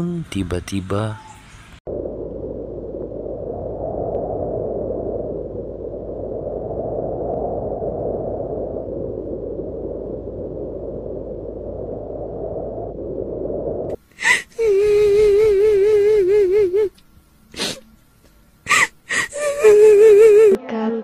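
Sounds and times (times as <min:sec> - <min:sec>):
deep hum: 0:00.0 - 0:20.6
low rushing noise: 0:01.4 - 0:14.0.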